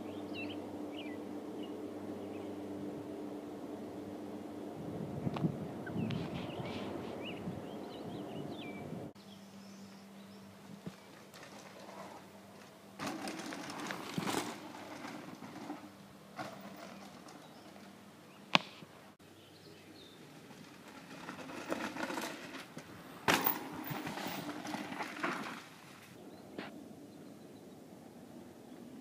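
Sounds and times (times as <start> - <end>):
bike tyres crunching on gravel: 10.6 - 19.0, 19.6 - 26.7.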